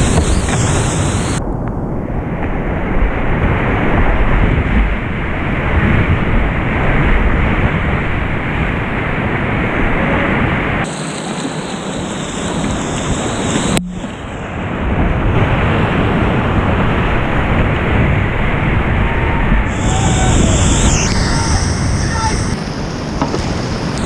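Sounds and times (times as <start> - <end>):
whitewater rushing and splashing: 10.3 - 24.0
low rumble: 16.3 - 23.2.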